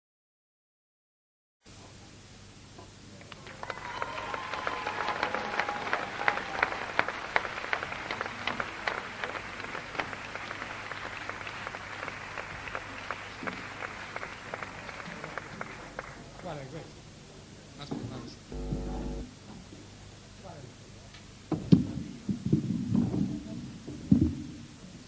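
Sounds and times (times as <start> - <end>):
audience applauding: 3.2 - 16.3.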